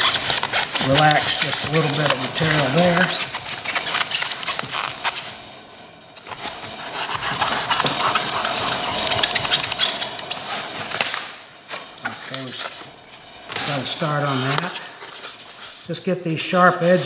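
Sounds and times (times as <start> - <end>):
knife sawing through foam board: 0.0 - 5.4, 6.3 - 11.2.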